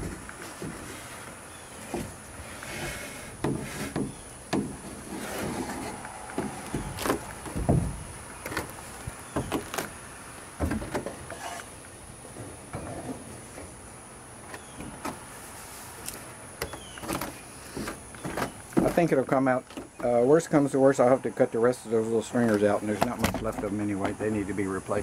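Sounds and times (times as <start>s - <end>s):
wooden knocks and scrapes: 0.0s - 9.9s, 16.6s - 20.1s.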